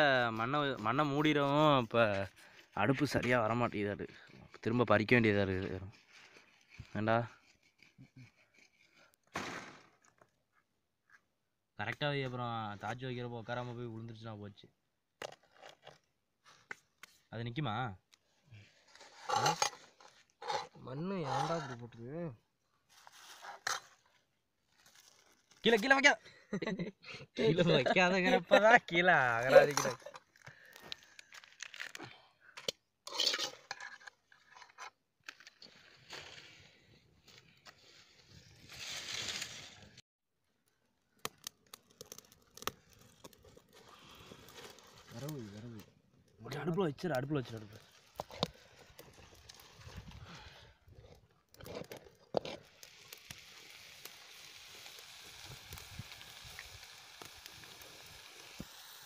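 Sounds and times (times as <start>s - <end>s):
metal scraping on stone: 18.9s - 21.9s, 33.0s - 35.0s
fire crackling: 22.9s - 26.2s, 27.5s - 32.2s, 35.3s - 59.0s
metal pot knocking and scraping on stone: 32.6s - 34.9s.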